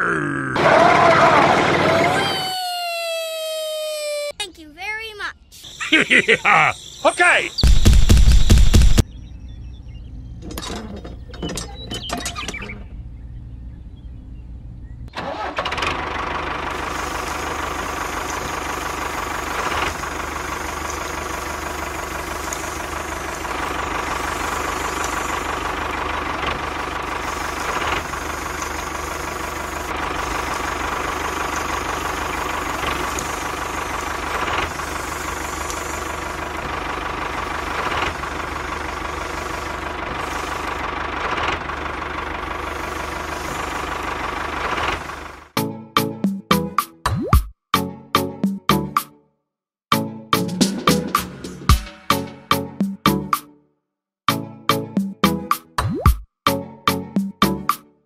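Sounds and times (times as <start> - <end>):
tractor engine running: 0.6 - 2.3, 5.7 - 46.9.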